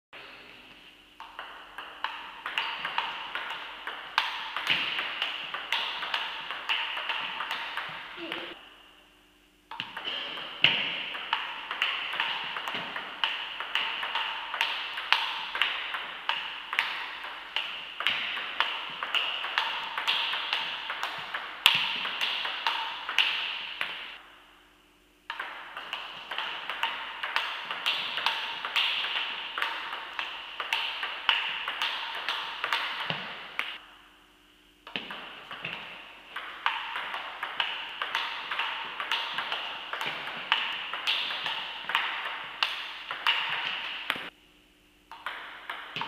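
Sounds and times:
table tennis ball clicks: 1.2 - 8.2, 9.7 - 24.0, 25.3 - 33.8, 34.9 - 44.4, 45.1 - 46.0.

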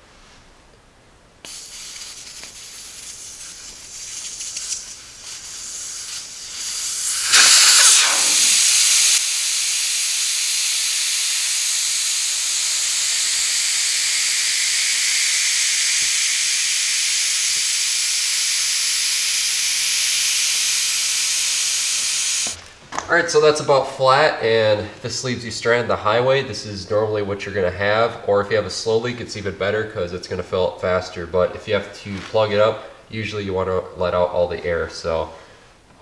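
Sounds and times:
air hissing out of tire: 1.5 - 22.6.

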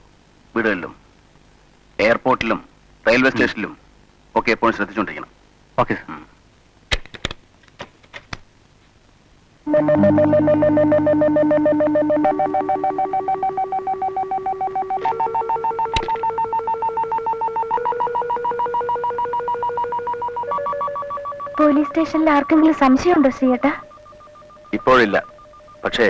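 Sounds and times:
synthesizer chords with tremolo: 9.7 - 26.0.

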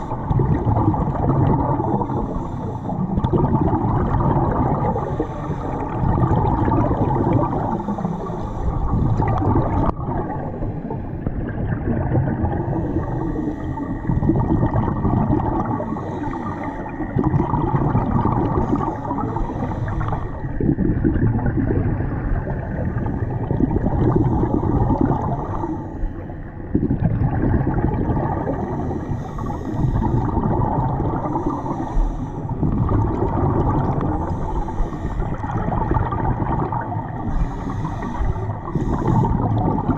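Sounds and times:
underwater regulator bubbles gurgling: 0.0 - 39.9.

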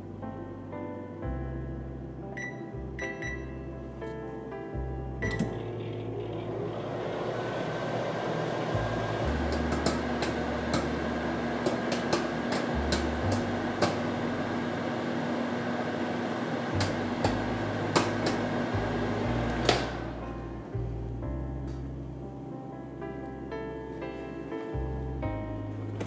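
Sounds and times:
microwave oven humming: 2.3 - 4.0, 4.8 - 23.7
popcorn popping: 5.2 - 20.1.

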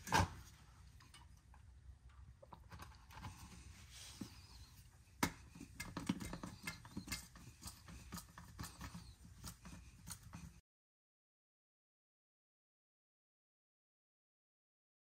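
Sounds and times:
handling of pump and hose: 3.0 - 10.6
hand pump clicking and knocking: 5.2 - 10.5.

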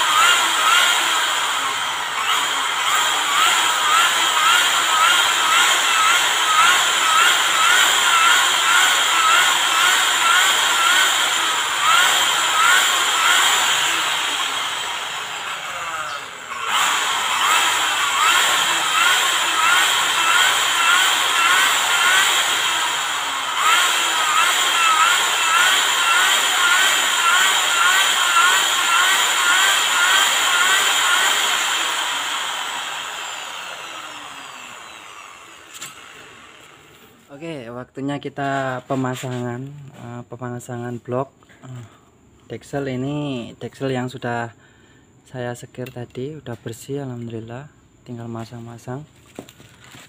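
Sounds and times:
electric drill whining: 0.0 - 37.3
valve grinding chirp: 0.0 - 37.4.

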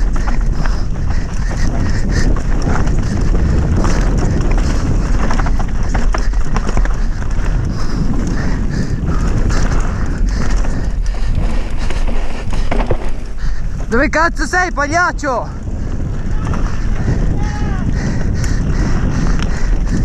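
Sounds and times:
tyres scrabbling over dirt: 0.0 - 14.4
bike rattling over bumps: 0.0 - 20.0
wind buffeting microphone: 0.0 - 20.0.

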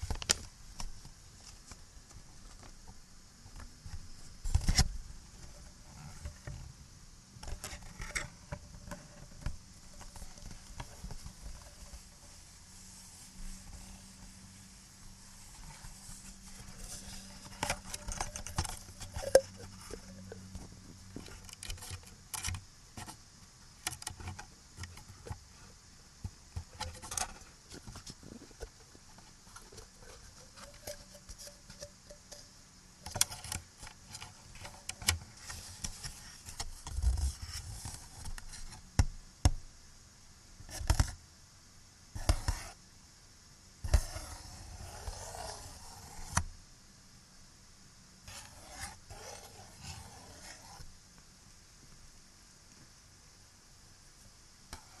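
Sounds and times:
recording hiss: 0.0 - 55.0
taps and scratches on small objects: 42.2 - 42.8, 43.8 - 46.4, 48.3 - 50.9.

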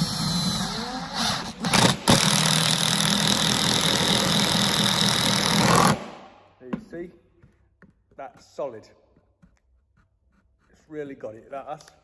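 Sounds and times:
impact driver driving screw: 0.0 - 6.1.

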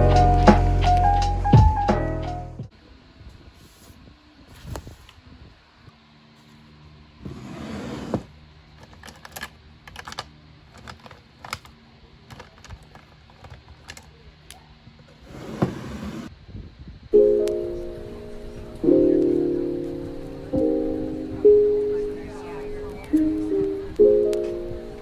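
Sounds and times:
pens clicking and rattling: 8.8 - 11.7, 12.3 - 14.1.

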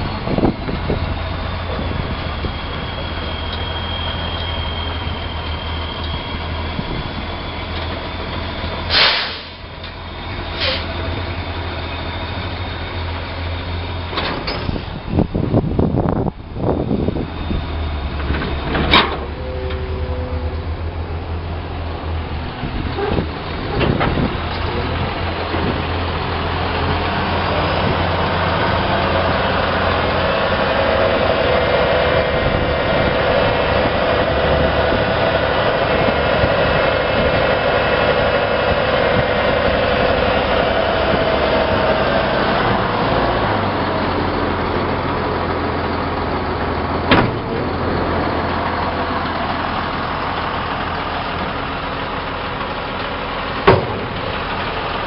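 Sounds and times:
diesel truck engine running: 0.0 - 55.0
hydraulic hoist whine: 0.0 - 55.0
sharp knocks: 53.7 - 54.2.

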